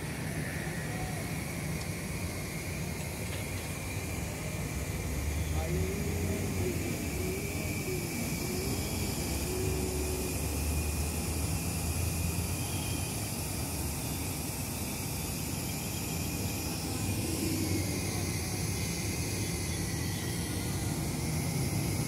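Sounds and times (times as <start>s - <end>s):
diesel engine running under load: 0.0s - 14.0s
faint high whine: 0.0s - 22.0s.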